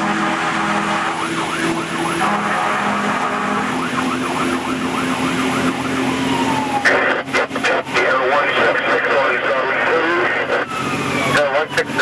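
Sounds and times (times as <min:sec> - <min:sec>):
fire engine siren yelping: 0:00.0 - 0:12.0
truck engine drone: 0:00.0 - 0:12.0.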